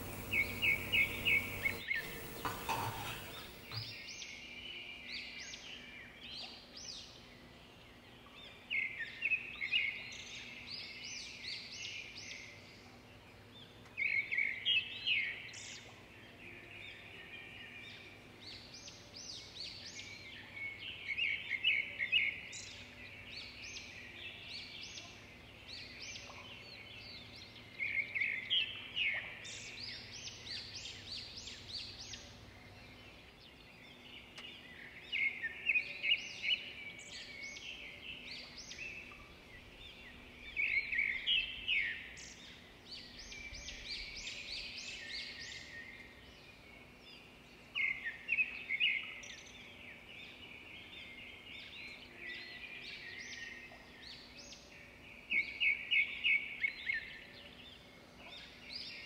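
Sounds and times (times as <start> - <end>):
small birds chirping: 0.0 - 16.4.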